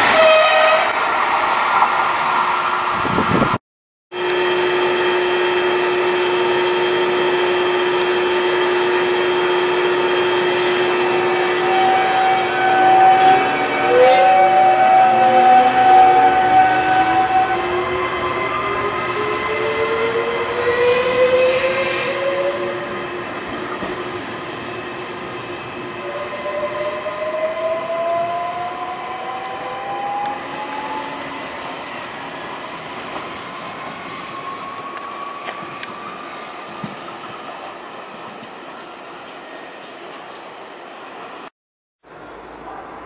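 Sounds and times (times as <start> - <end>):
electric train motors whining: 4.2 - 37.4
train wheels rumbling on rails: 6.1 - 40.6.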